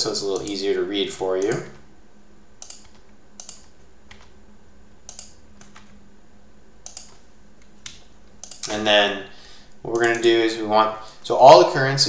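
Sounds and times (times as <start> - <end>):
faint steady hum: 0.0 - 12.0
computer keyboard keystrokes: 2.6 - 4.3, 5.1 - 6.0, 6.8 - 8.8, 10.0 - 10.3.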